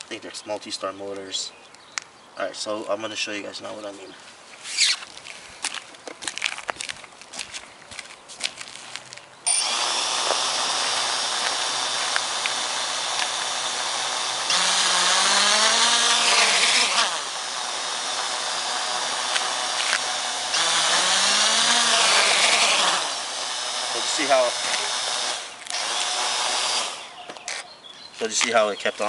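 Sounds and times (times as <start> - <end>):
quadcopter motors whining: 9.5 - 27.7.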